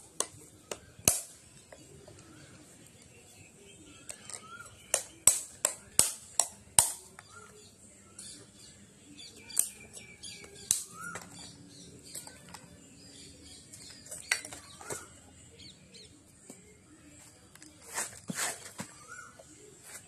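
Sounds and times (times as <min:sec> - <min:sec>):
coconut shell cracking: 0:00.1 - 0:01.8, 0:04.1 - 0:07.3, 0:09.4 - 0:11.4
quiet scraping: 0:17.3 - 0:20.0.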